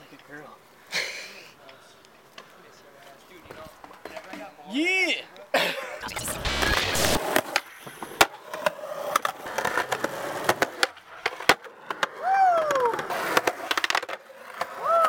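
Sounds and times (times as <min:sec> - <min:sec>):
skateboard wheels rolling on concrete: 0:00.0 - 0:04.8, 0:07.2 - 0:15.0
skateboard clacking on ground: 0:07.4 - 0:15.0.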